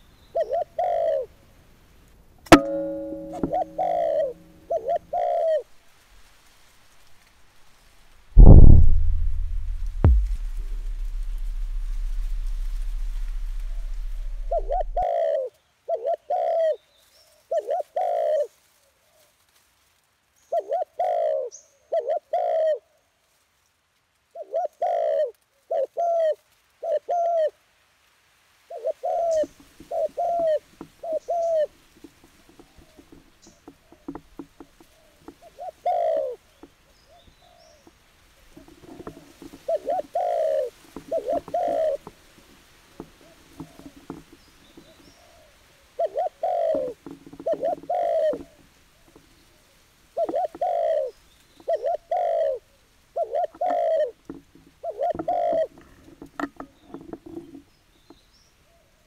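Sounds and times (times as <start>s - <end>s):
dove cooing: 0.3s - 1.3s, 2.5s - 5.6s, 11.3s - 16.8s, 17.5s - 18.5s, 20.6s - 22.8s, 24.4s - 27.5s, 28.7s - 31.7s, 34.9s - 36.4s, 38.5s - 44.1s, 44.7s - 54.2s, 54.8s - 56.0s
faint rustling and clicks: 29.3s - 52.0s, 52.9s - 58.4s.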